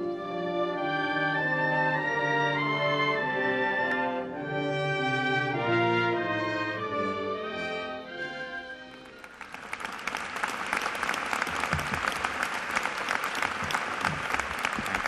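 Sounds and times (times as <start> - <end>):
music: 0.0 - 15.0
audience clapping: 8.9 - 15.0.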